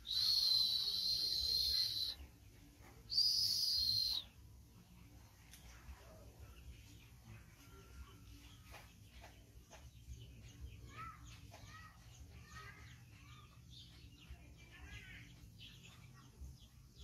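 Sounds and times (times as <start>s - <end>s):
high chirping calls: 0.0s - 2.2s, 3.1s - 4.3s.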